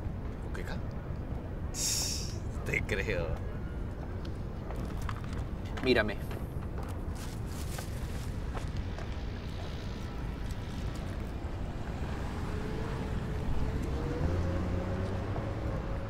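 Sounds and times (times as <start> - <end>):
wind rumbling on microphone: 3.4 - 16.0.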